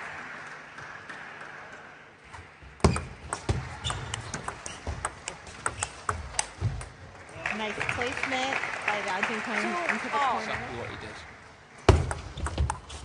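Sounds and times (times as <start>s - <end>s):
crowd applause: 0.0s - 2.2s, 7.2s - 11.4s
table tennis ball clicking: 2.8s - 6.9s.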